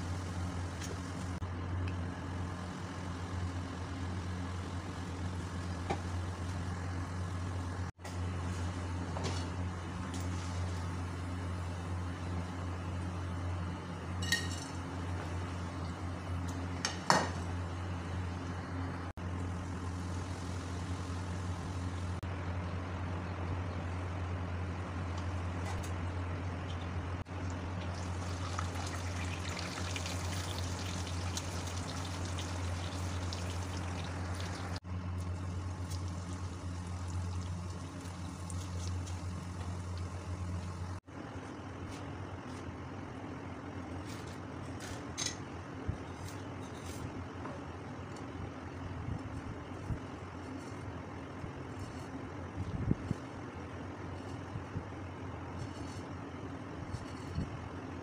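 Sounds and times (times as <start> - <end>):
low even hum: 0.0 - 58.0
metal spoon striking a pan: 14.2 - 14.7
noodles sizzling in hot oil: 27.5 - 41.0.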